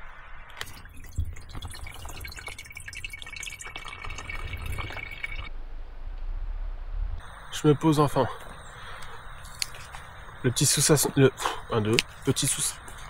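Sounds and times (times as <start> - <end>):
water dripping and trickling: 0.6 - 5.5, 8.4 - 13.0.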